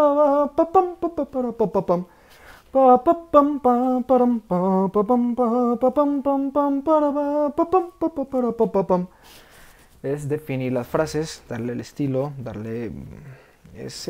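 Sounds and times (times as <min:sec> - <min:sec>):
man singing trumpet melody: 0:00.0 - 0:09.1
man breathing in: 0:02.1 - 0:02.7, 0:09.1 - 0:10.0.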